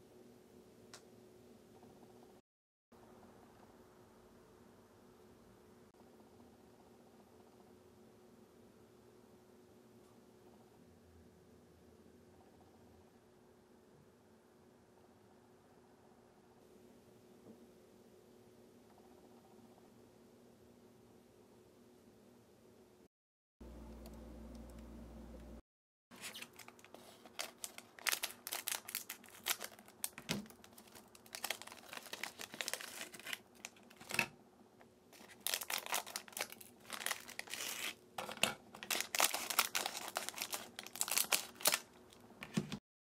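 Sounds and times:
low steady hum: 23.6s - 25.6s
snack wrappers crinkling and tearing: 26.2s - 34.2s, 35.2s - 42.2s
scissors cutting plastic: 35.2s - 41.9s.

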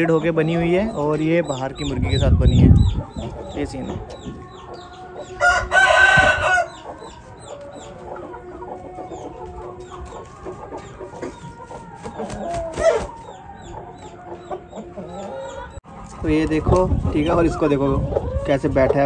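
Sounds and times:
hens clucking: 0.0s - 19.0s
rooster crowing: 5.0s - 7.2s.

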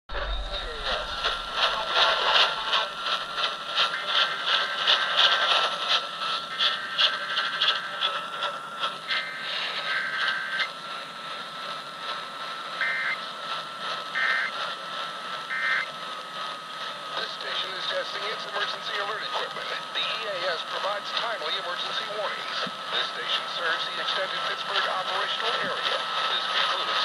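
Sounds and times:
radio static hiss and crackle: 0.1s - 14.8s, 15.5s - 27.0s
steady whistle: 12.8s - 13.3s.

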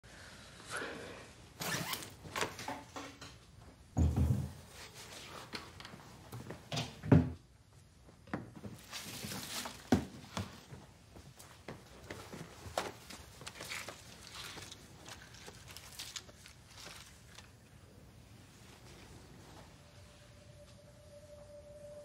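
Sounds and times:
rustling and scraping: 8.6s - 10.8s, 11.9s - 17.7s.

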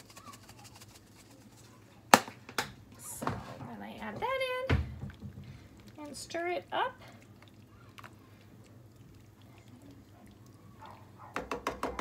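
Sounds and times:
spoon stirring thick filling: 5.1s - 12.0s.

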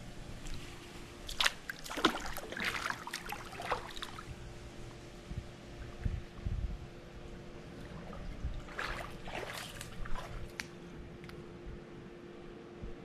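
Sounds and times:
bare feet splashing in water: 0.4s - 4.3s, 7.7s - 10.8s
water trickling: 7.7s - 10.7s.

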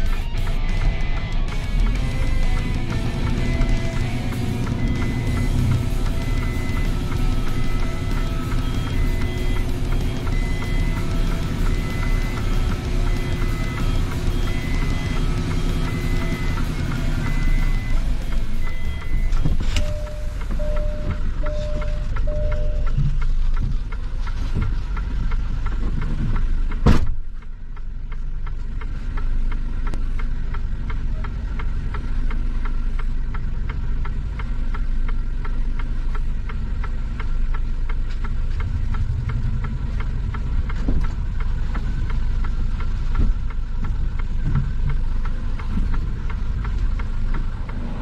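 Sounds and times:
diesel truck engine idling: 0.0s - 48.0s
cab door slamming: 26.8s - 27.2s.

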